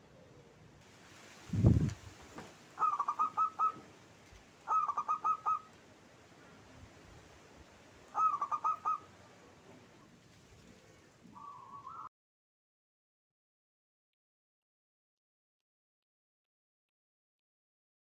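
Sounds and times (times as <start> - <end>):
dove cooing: 2.8 - 3.9, 4.7 - 5.8, 8.1 - 9.6, 10.6 - 12.1.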